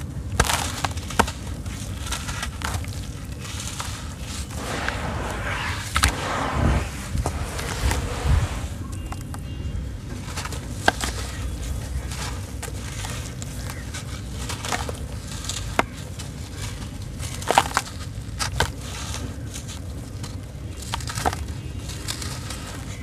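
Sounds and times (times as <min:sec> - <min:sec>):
cement chunk crunching by hand: 0:00.1 - 0:05.3, 0:10.3 - 0:23.0
pieces snapping off: 0:00.3 - 0:04.0.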